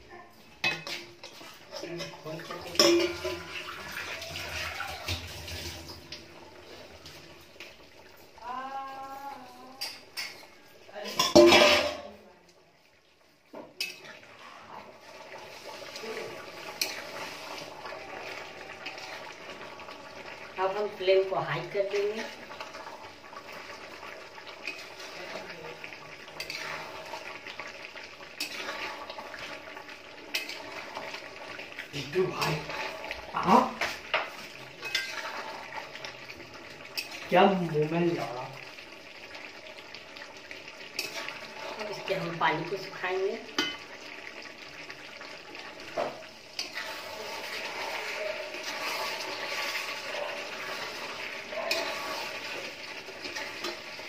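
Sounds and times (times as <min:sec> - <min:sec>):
curry sizzling in a pan: 0:00.0 - 0:54.0
metal ladle scraping a pan: 0:11.1 - 0:12.1, 0:13.8 - 0:19.4, 0:24.5 - 0:25.5, 0:26.2 - 0:31.5, 0:32.2 - 0:36.1, 0:36.9 - 0:37.3, 0:40.9 - 0:42.4, 0:46.0 - 0:54.0.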